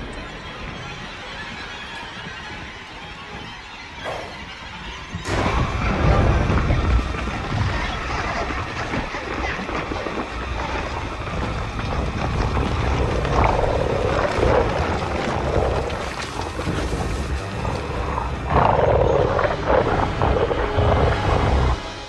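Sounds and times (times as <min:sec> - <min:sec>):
deep rumble: 0:04.0 - 0:22.0
creature growls: 0:17.6 - 0:22.0.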